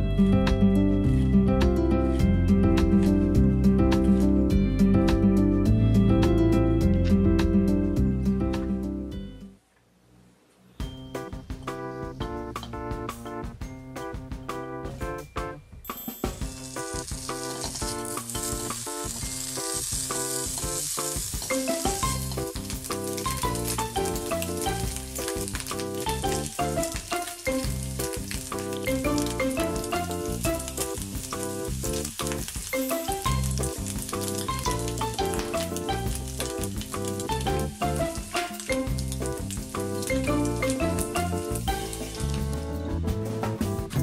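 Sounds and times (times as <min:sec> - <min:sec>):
keyboard music: 0:00.0 - 0:09.6, 0:10.8 - 0:44.0
bacon sizzling in frying pan: 0:16.4 - 0:42.8.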